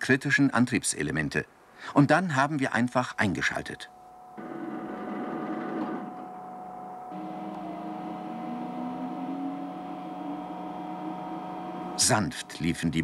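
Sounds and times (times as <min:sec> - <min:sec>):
machine hum with rising tone: 0:04.4 - 0:13.0.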